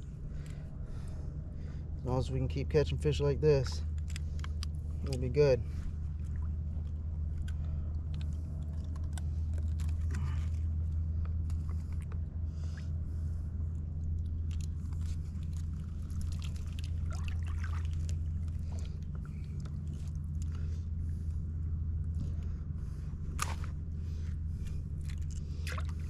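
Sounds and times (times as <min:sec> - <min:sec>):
steady low rumble: 0:00.0 - 0:26.0
water splashing and trickling: 0:14.2 - 0:20.6.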